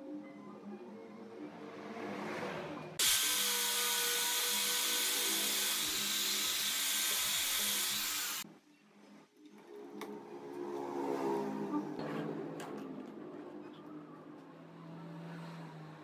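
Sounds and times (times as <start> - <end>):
angle grinder sanding wood: 3.0 - 8.4.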